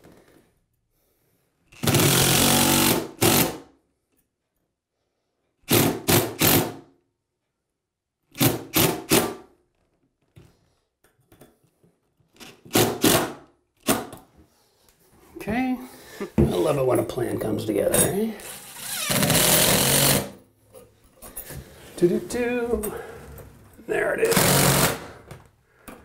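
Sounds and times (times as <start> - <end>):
impact driver driving screw: 1.8 - 3.6, 5.7 - 6.8, 12.4 - 14.2, 18.5 - 20.4, 24.3 - 25.1.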